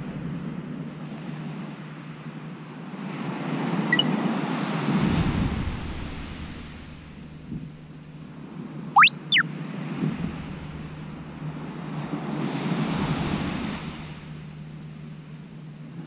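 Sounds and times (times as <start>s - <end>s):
surf washing on sand: 2.8s - 7.6s, 9.3s - 14.4s
gliding whistle: 9.0s - 9.4s.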